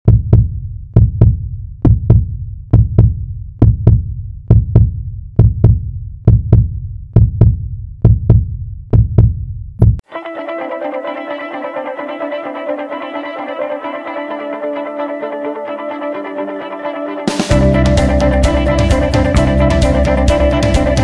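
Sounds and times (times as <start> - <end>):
heartbeat double thump: 0.1 - 10.0.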